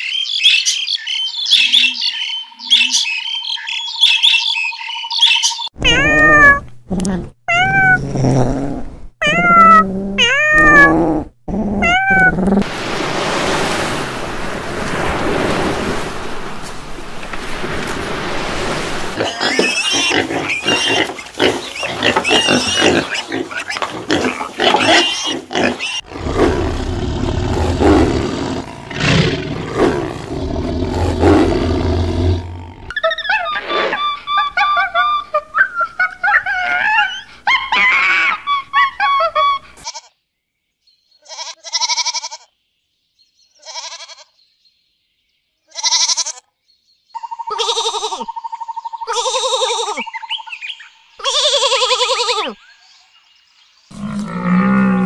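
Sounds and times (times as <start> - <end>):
animal calls: 19.2 - 40.0.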